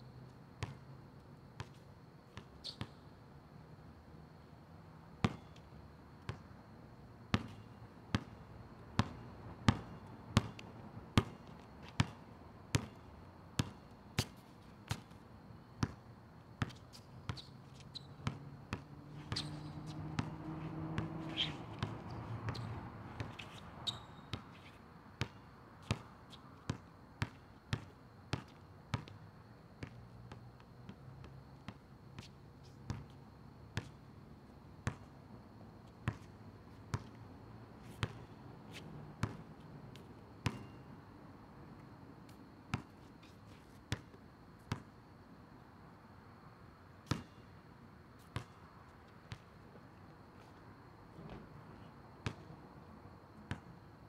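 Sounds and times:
basketball bouncing on asphalt: 0:00.6 - 0:00.8, 0:01.6 - 0:03.0, 0:05.2 - 0:05.6, 0:07.3 - 0:15.2, 0:15.8 - 0:34.1, 0:34.8 - 0:37.2, 0:37.9 - 0:40.8, 0:42.4 - 0:43.0, 0:43.9 - 0:45.0, 0:47.0 - 0:47.4, 0:48.2 - 0:48.7, 0:49.3 - 0:49.6, 0:52.2 - 0:52.5, 0:53.4 - 0:53.7.

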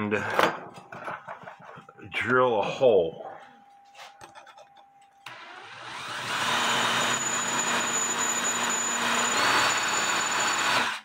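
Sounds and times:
drill drilling into steel: 0:05.3 - 0:11.0.

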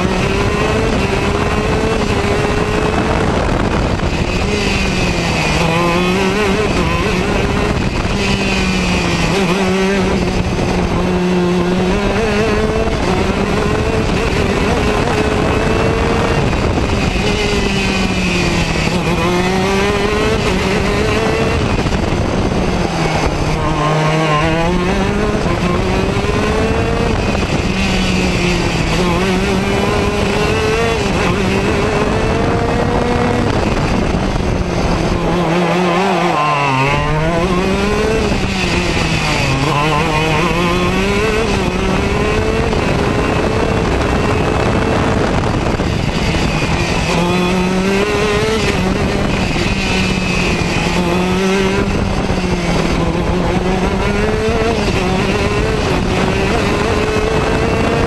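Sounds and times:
kart engine revving: 0:00.0 - 0:58.0.

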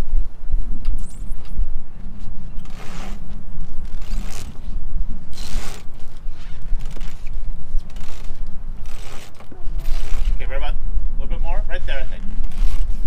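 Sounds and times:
low rumble: 0:00.0 - 0:13.0
winch pawls ratcheting: 0:05.3 - 0:10.4, 0:12.3 - 0:13.0.

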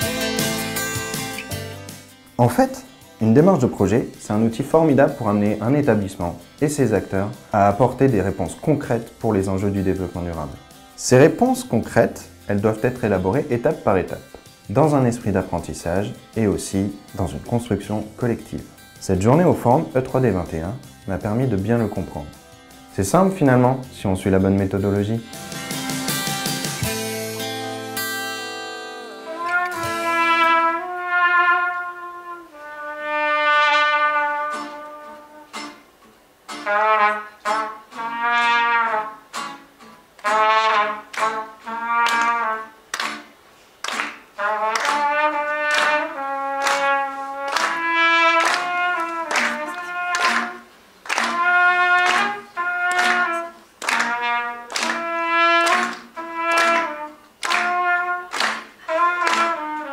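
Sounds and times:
trumpet playing melody: 0:00.0 - 0:01.8, 0:26.8 - 0:35.8, 0:36.5 - 0:39.6, 0:40.2 - 0:43.0, 0:43.9 - 0:59.9.

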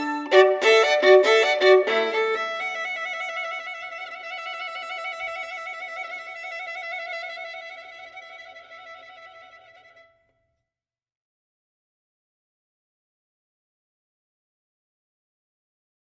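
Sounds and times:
violin note with vibrato: 0:00.0 - 0:03.6.

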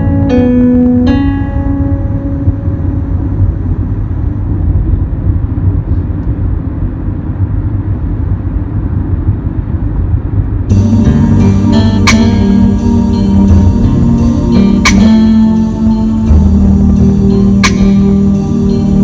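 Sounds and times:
guitar music: 0:00.0 - 0:04.4, 0:10.7 - 0:19.0
car cabin road and engine rumble: 0:00.0 - 0:19.0.

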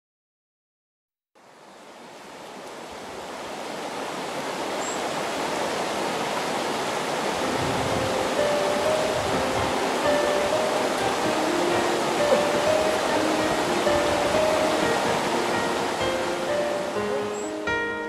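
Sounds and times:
river rushing over rocks: 0:01.4 - 0:18.0
soft music notes: 0:07.4 - 0:18.0.

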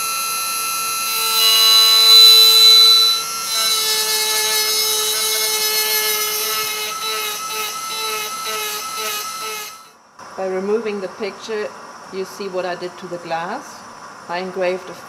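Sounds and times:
engraving pen whining on glass: 0:00.0 - 0:09.9.

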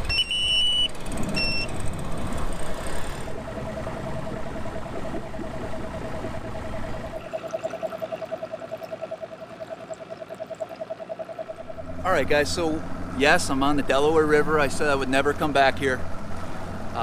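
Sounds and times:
outboard engine idling: 0:00.5 - 0:17.0.

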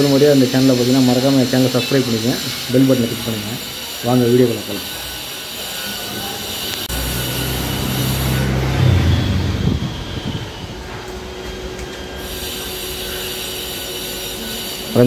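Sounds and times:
vehicle mechanical hum: 0:06.7 - 0:11.6.

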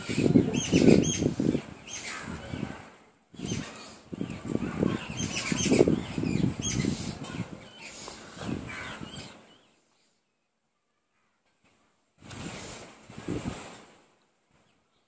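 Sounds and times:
faint bird chirps: 0:03.3 - 0:11.4.

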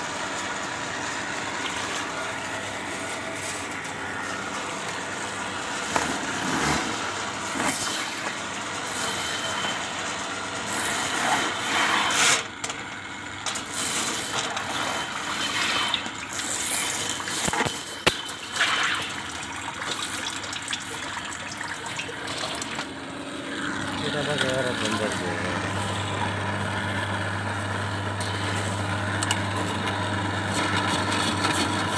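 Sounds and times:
drain cleaning machine scraping: 0:10.6 - 0:12.5, 0:13.5 - 0:27.0.

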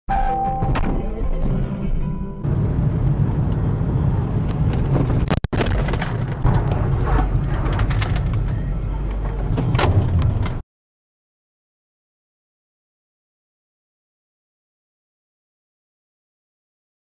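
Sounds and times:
car engine and tyres rumbling: 0:01.2 - 0:10.6.

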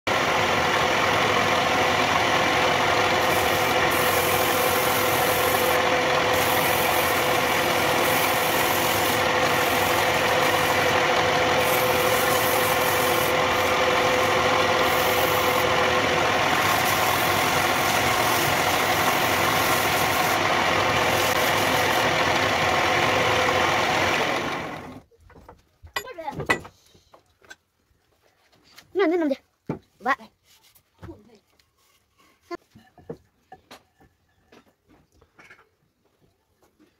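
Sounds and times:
wood lathe running: 0:00.1 - 0:25.0.

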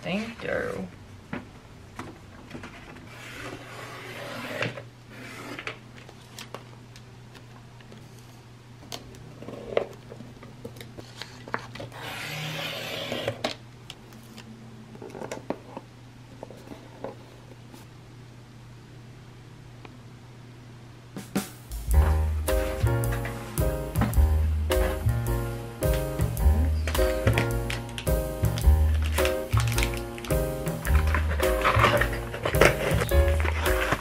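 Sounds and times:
low steady hum: 0:13.5 - 0:34.0
paper sheets rustling: 0:26.8 - 0:34.0.

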